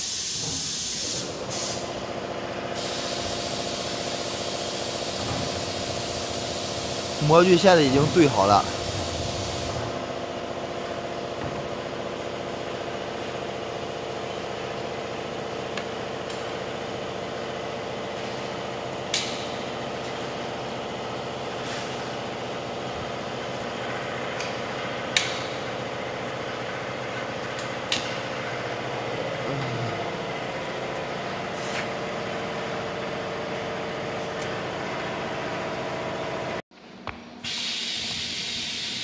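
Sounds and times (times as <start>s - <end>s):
machine humming: 6.2s - 13.3s.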